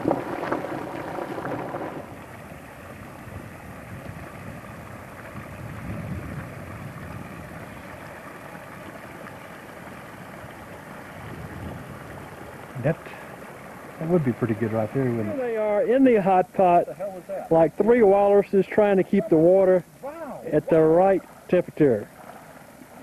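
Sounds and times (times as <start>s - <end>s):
hot spring boiling and hissing: 0.0s - 23.0s
shallow water flowing: 0.0s - 23.0s.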